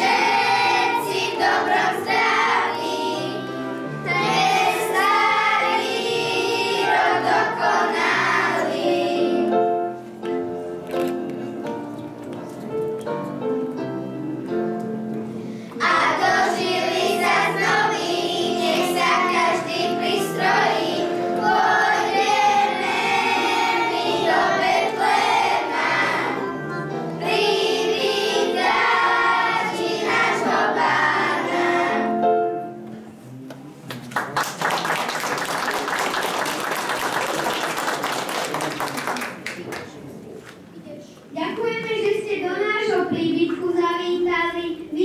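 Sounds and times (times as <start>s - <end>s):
children singing a carol: 0.0s - 9.7s, 15.8s - 32.2s
audience applauding: 33.8s - 40.0s.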